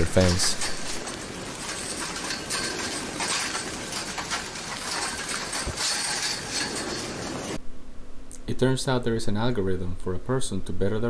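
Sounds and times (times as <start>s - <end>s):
crackle of clinking crust pieces: 0.0s - 7.6s.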